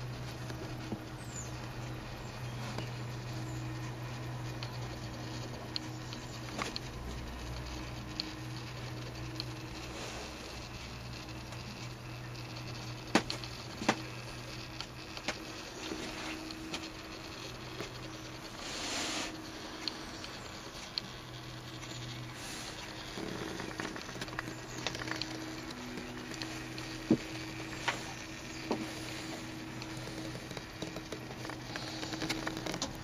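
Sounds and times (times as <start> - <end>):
small clicks: 0.0 - 18.6, 19.2 - 33.0
steady low hum: 0.0 - 33.0.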